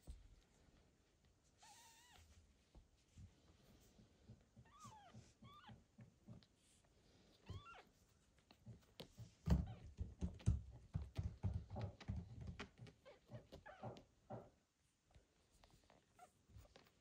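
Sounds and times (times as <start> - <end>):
kitten squeaking: 1.6 - 2.2, 4.6 - 5.8, 7.4 - 7.9.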